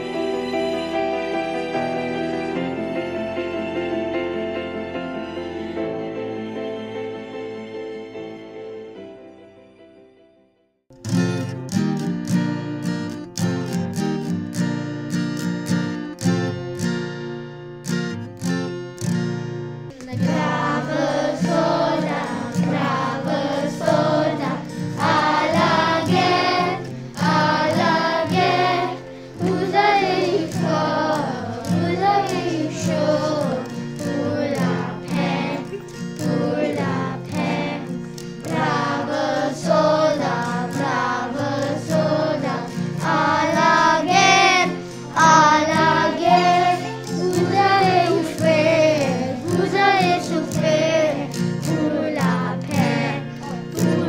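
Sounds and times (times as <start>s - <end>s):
instrumental accompaniment: 0.0s - 54.0s
children singing together: 19.9s - 54.0s.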